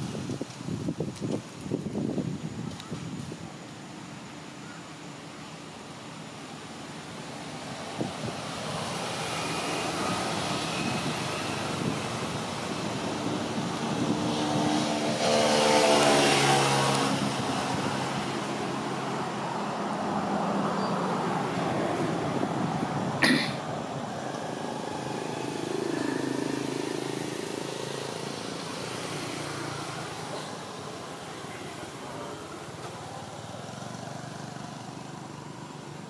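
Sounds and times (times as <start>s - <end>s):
vehicle driving past: 8.3s - 23.0s, 24.0s - 36.0s.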